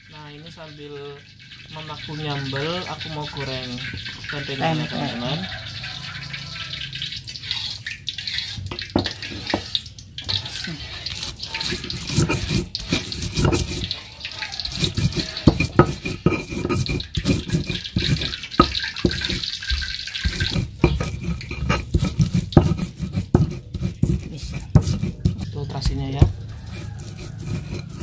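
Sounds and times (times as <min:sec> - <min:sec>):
stone pestle knocking and grinding: 0:08.6 - 0:09.7, 0:11.1 - 0:14.0, 0:14.7 - 0:28.0.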